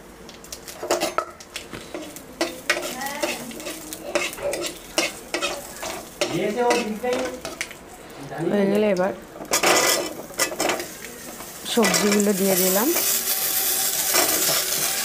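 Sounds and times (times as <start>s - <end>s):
spices sizzling in hot oil: 0.0s - 15.0s
metal spatula scraping a pan: 1.9s - 7.6s, 9.5s - 15.0s.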